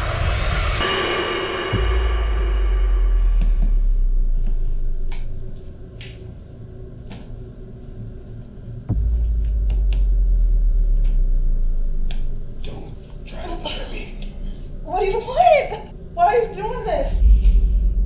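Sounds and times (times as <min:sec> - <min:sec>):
deep hit: 0:00.0 - 0:05.9, 0:08.8 - 0:13.2, 0:17.1 - 0:18.0
deep low rumbling drone: 0:00.0 - 0:18.0.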